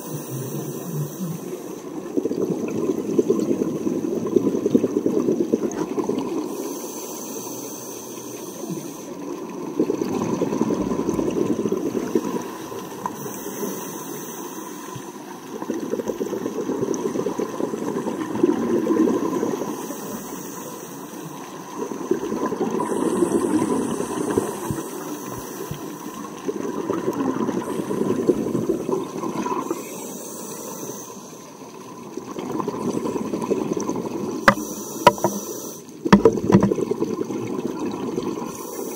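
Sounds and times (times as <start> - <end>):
underwater regulator breathing: 0.0 - 1.9, 6.4 - 9.2, 10.8 - 15.2, 22.8 - 26.4, 34.4 - 36.7
exhaled bubbles rushing: 0.0 - 6.5, 9.4 - 13.1, 26.2 - 29.8, 31.8 - 35.4, 36.0 - 38.6.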